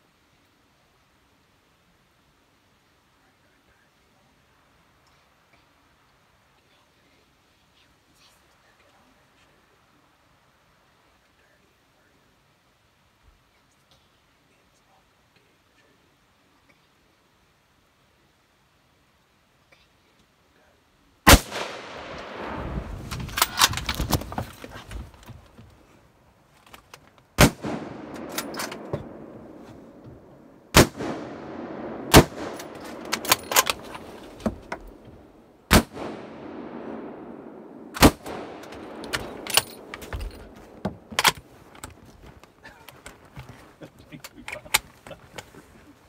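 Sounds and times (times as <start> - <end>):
rifle shots with echo: 21.3 - 23.7, 27.4 - 30.0, 30.7 - 35.0, 35.7 - 40.8.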